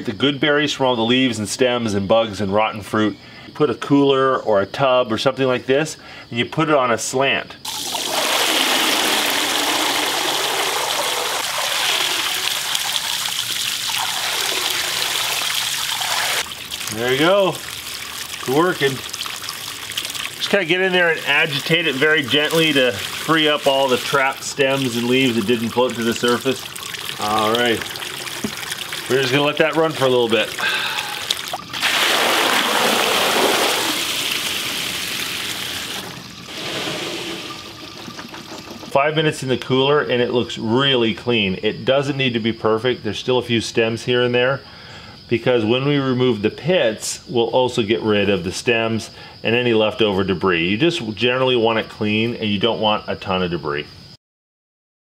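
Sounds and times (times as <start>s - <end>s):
berries splashing into water: 7.7s - 38.3s
hose water running into cooler: 7.7s - 39.7s
berries sliding into colander: 35.9s - 38.7s.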